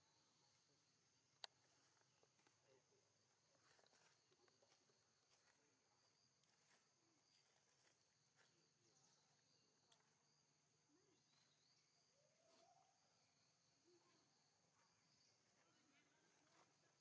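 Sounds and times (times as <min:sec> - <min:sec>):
faint high insect drone: 0:00.0 - 0:17.0.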